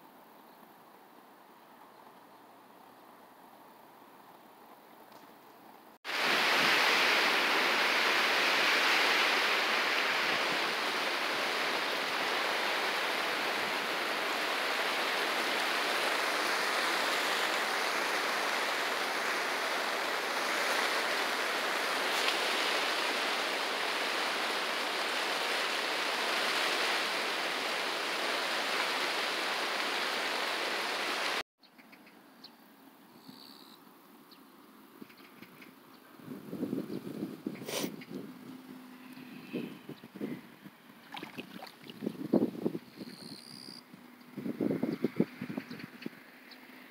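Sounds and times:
wind rushing through grass: 6.1s - 31.4s, 36.1s - 46.9s.

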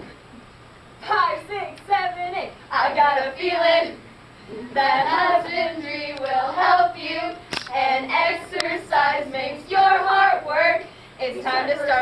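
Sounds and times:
girls singing in unison: 1.0s - 12.0s
sharp click: 7.5s - 7.8s.

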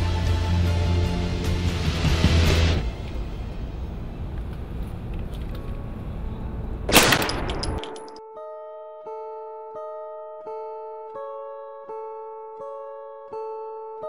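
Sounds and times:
loud gunshot: 6.9s - 8.0s
plucked guitar notes: 8.2s - 14.0s.

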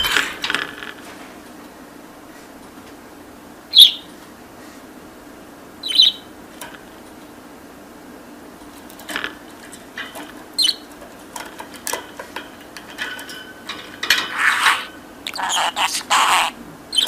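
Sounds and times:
budgerigar chattering: 5.8s - 6.3s, 14.4s - 17.0s.

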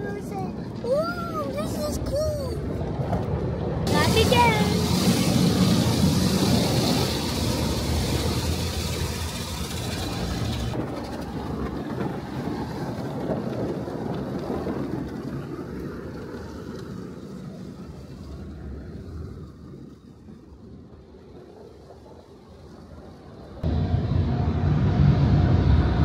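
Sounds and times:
low rumble: 2.6s - 16.2s, 23.2s - 26.0s
water spraying onto car: 3.9s - 10.8s.

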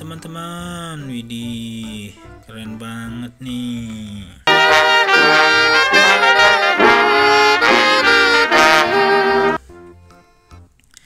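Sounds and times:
brass band playing: 4.5s - 9.6s.

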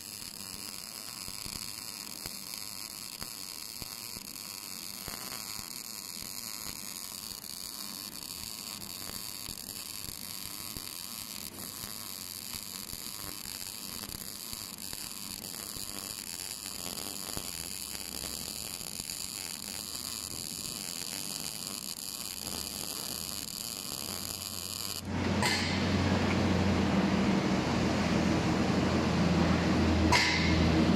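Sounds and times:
welding arc sizzling hiss: 0.0s - 30.9s
broad noise with low hum: 25.0s - 30.9s.

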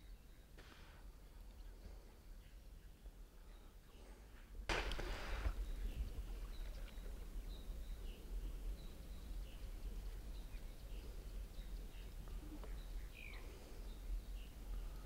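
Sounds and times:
rushing hiss: 4.7s - 5.6s
faint bird chirps: 5.2s - 15.0s.

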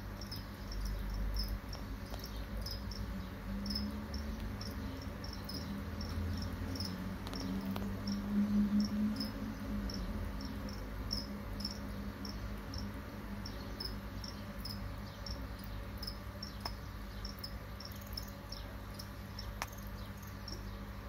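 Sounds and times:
crickets chirping: 0.0s - 21.0s
low steady hum: 0.0s - 21.0s
faint ticks: 1.7s - 2.4s, 4.2s - 4.8s, 7.2s - 8.0s, 16.5s - 17.5s, 19.0s - 19.9s.

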